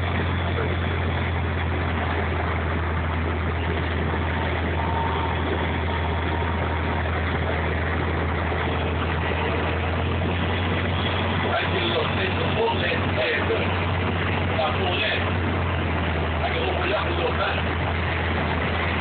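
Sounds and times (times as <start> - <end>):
bus cabin drone and road noise: 0.0 - 19.0.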